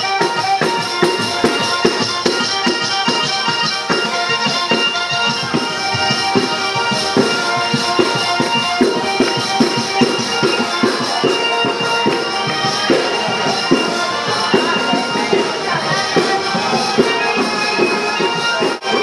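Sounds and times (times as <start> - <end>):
sustained melody and drone: 0.8 - 19.0.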